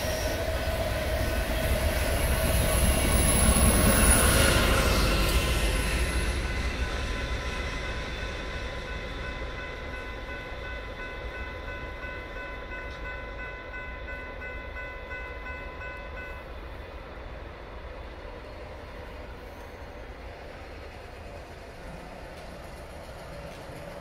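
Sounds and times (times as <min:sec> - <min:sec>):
train rumble: 0:00.0 - 0:24.0
railroad crossing bell ringing: 0:02.2 - 0:16.9.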